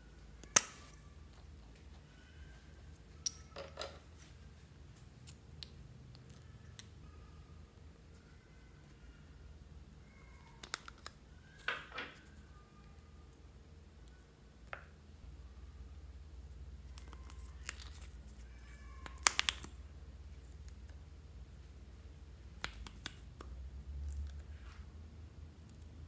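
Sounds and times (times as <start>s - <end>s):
plastic caps clicking: 10.6s - 11.2s, 19.0s - 19.8s.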